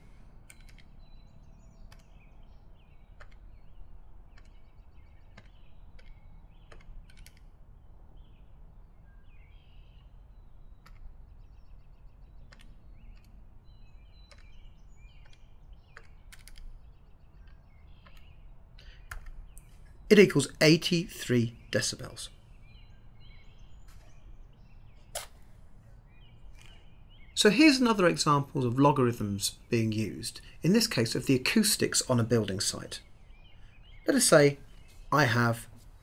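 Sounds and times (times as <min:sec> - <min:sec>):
calculator keys clicking: 0:00.5 - 0:01.0, 0:03.2 - 0:03.5, 0:05.3 - 0:07.5, 0:12.4 - 0:13.4, 0:14.0 - 0:18.3.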